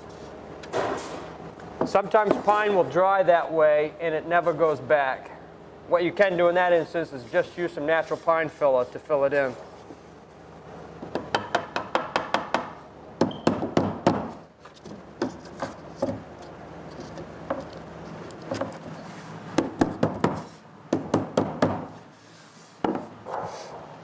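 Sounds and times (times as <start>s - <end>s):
hammer tapping nails into wood: 11.1s - 14.3s.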